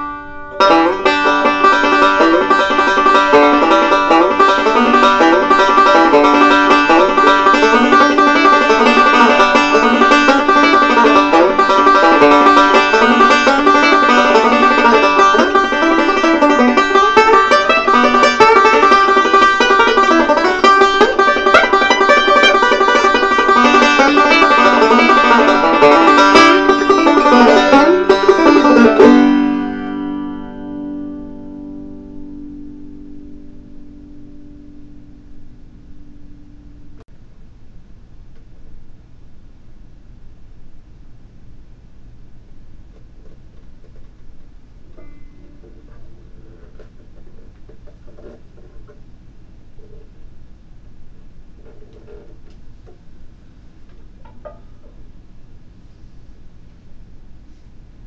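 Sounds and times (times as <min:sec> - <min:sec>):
banjo picking rolling notes: 0:00.0 - 0:37.0, 0:44.8 - 0:49.0.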